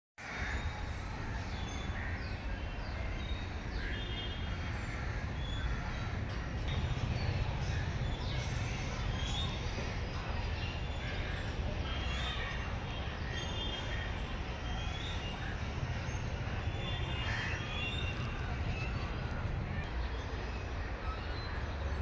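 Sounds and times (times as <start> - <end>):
birds calling: 1.6 - 21.8
steady low rumble: 4.6 - 13.2, 13.9 - 20.8.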